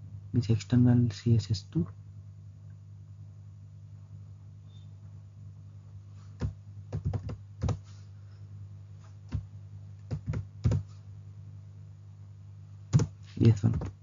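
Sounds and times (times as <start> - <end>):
steady low hum: 0.0 - 14.0
computer keyboard keystrokes: 6.4 - 7.8, 10.0 - 10.9, 12.9 - 14.0.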